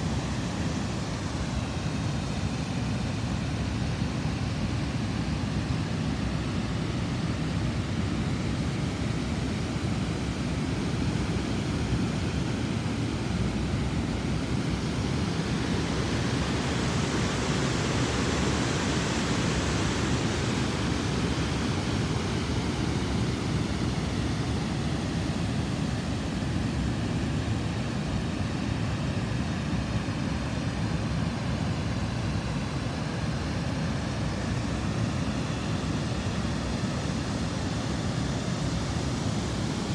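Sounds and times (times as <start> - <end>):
river water rushing over weir: 8.8 - 39.9.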